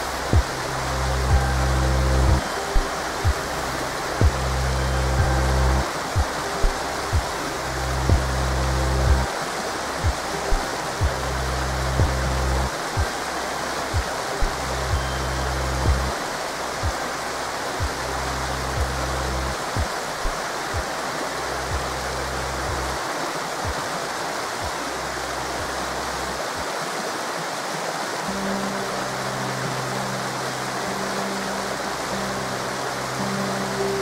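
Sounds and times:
faint low pulse: 0.0s - 9.4s, 10.0s - 17.1s
soft music with deep bass notes: 0.0s - 26.7s, 28.2s - 34.0s
river rushing: 0.0s - 34.0s.

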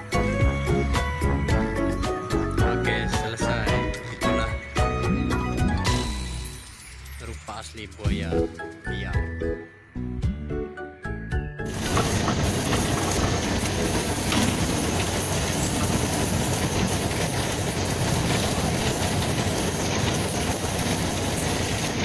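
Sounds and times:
boat engine rumble: 11.7s - 22.0s.

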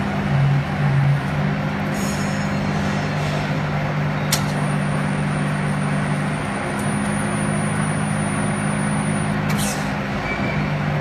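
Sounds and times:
machine humming: 4.3s - 9.5s.

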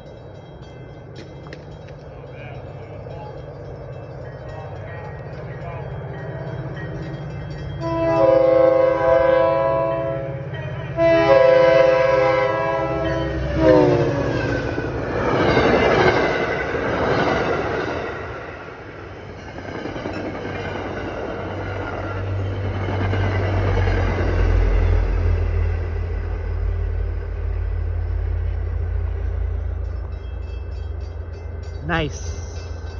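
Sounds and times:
train coaches rushing past: 0.0s - 32.9s
train horn blasts: 7.8s - 14.4s.

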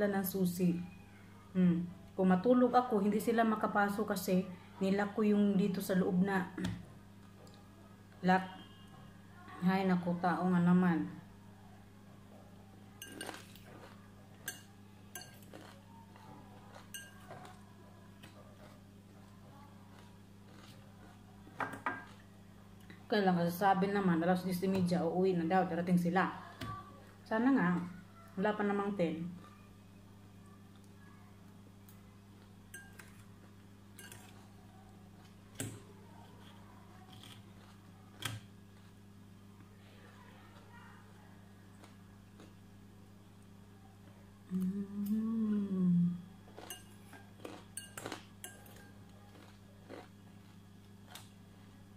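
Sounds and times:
steady low hum: 0.0s - 51.9s
fork clinking against glass bowl: 13.0s - 13.5s, 16.7s - 17.3s, 32.7s - 33.2s, 34.0s - 34.4s, 46.6s - 49.0s.

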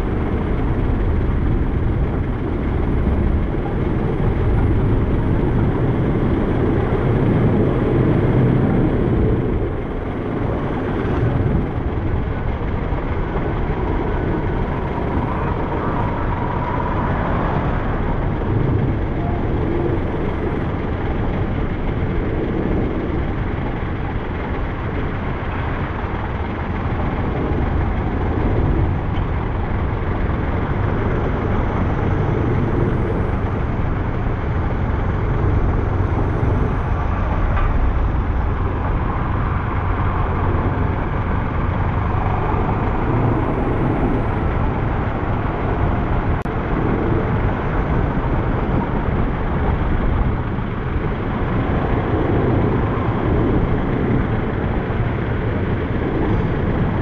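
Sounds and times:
road noise from moving vehicle: 0.0s - 57.0s
wind on microphone: 0.0s - 57.0s.

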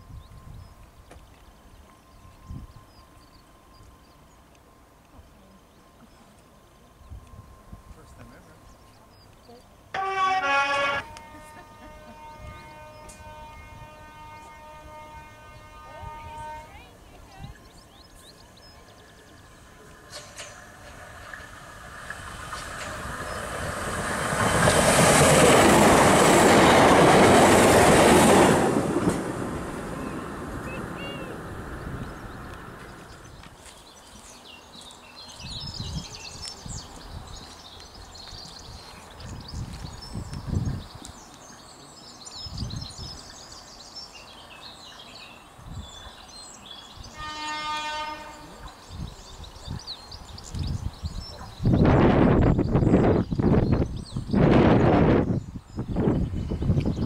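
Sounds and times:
wind buffeting microphone: 0.0s - 4.0s, 10.9s - 34.0s, 35.3s - 41.4s, 42.4s - 43.6s, 45.5s - 47.3s, 48.6s - 57.0s
electric train passing: 0.0s - 57.0s
birdsong: 8.2s - 28.3s, 29.8s - 57.0s
train horn: 9.9s - 17.5s, 47.0s - 48.8s.

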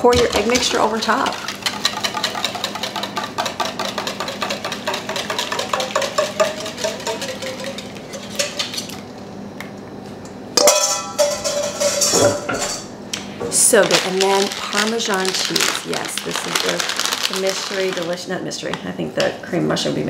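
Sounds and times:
whisk scraping metal bowl: 0.2s - 8.9s
loud ringing metal clang: 10.6s - 12.9s.

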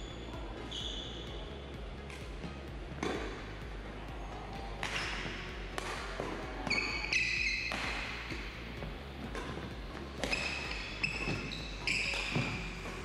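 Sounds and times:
sneakers squeaking on wooden floor: 0.0s - 2.3s, 6.2s - 13.0s
rackets hitting shuttlecock: 2.0s - 13.0s.

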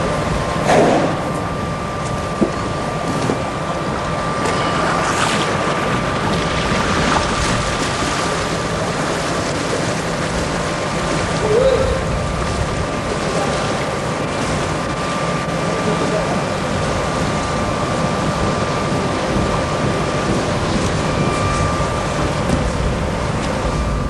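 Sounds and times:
thin steady hum: 0.0s - 24.0s
water splashing and sloshing: 0.0s - 24.0s
wind noise on microphone: 10.4s - 13.1s, 17.3s - 24.0s.

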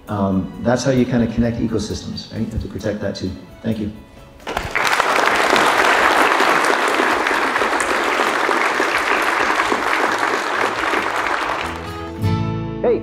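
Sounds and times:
audience applauding: 4.4s - 12.2s.

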